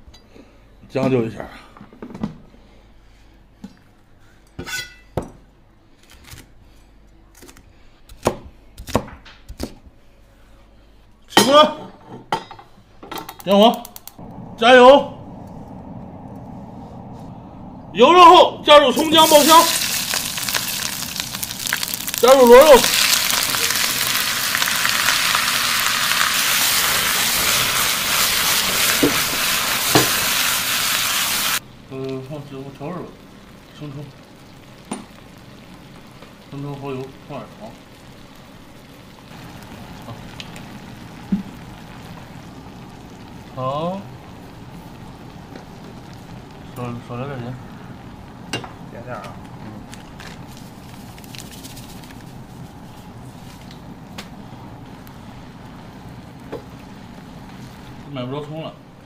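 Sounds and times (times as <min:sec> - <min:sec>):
meat sizzling in hot oil: 0:19.0 - 0:59.0.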